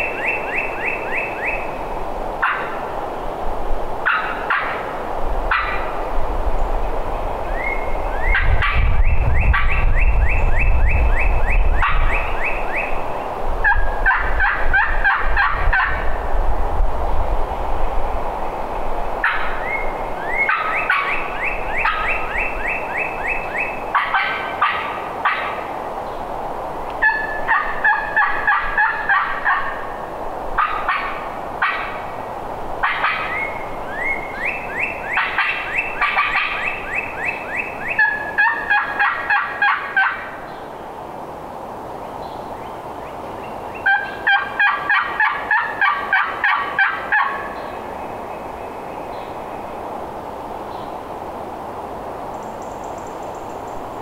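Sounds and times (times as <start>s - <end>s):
turkey gobbling: 27.0s - 29.8s, 34.8s - 36.7s, 37.9s - 40.3s, 43.8s - 47.5s.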